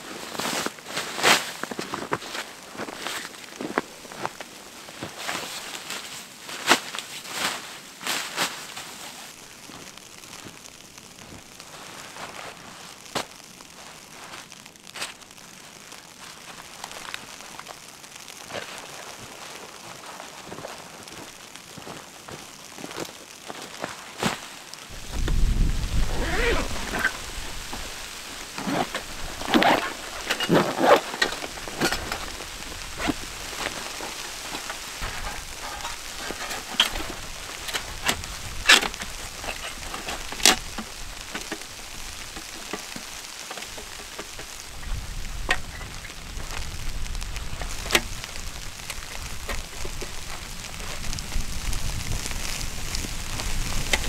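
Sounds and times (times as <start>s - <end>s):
carry bag rustling: 23.6s - 51.4s
wind gusts on microphone: 24.9s - 28.4s, 44.6s - 54.0s
metal clinks and clanks: 35.0s - 37.8s.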